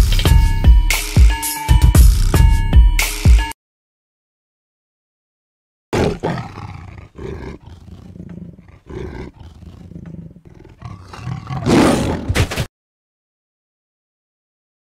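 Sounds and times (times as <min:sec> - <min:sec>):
tiger growling: 0:06.0 - 0:12.4
tiger roaring: 0:06.0 - 0:12.4.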